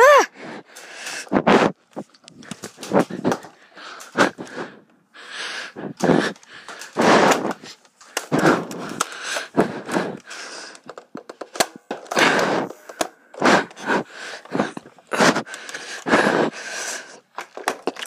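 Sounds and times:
heavy fast breathing: 0:00.0 - 0:17.8
sharp clicks and knocks: 0:06.0 - 0:13.8.

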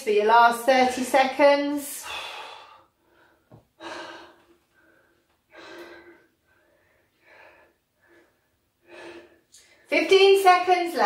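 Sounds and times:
person breathing heavily: 0:02.0 - 0:09.8.

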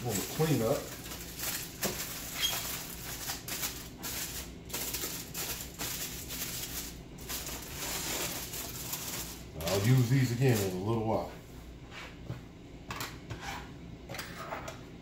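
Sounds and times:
aluminium foil crinkling: 0:00.0 - 0:10.9.

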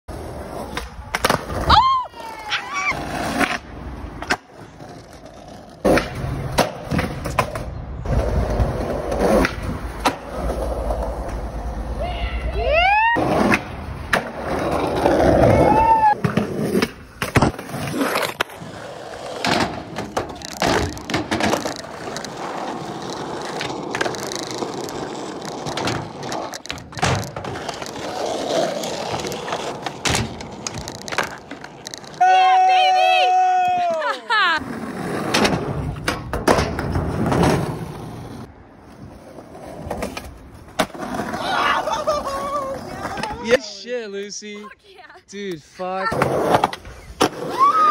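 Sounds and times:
skateboard wheels rolling on concrete: 0:00.1 - 0:47.9
skateboard clacking on ground: 0:19.4 - 0:32.5, 0:38.9 - 0:43.4.

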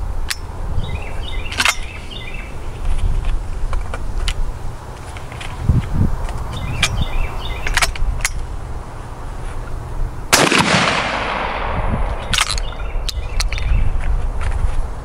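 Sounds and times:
shotgun shot with echo: 0:10.3 - 0:12.2.

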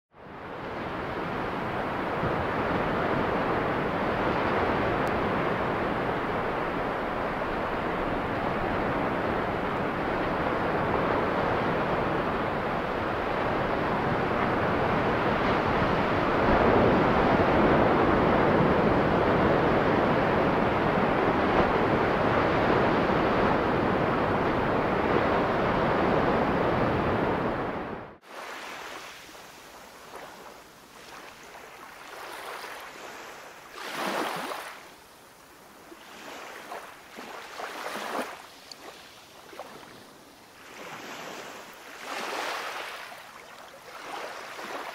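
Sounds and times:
ocean surf rushing: 0:00.4 - 0:44.9
water lapping: 0:28.2 - 0:44.9.

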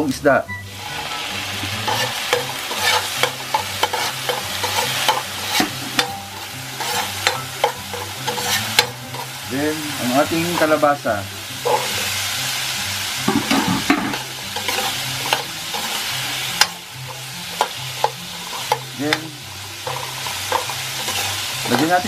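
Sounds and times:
squash sizzling in a wok: 0:00.0 - 0:22.0
metal ladle scraping a pan: 0:00.7 - 0:22.0.

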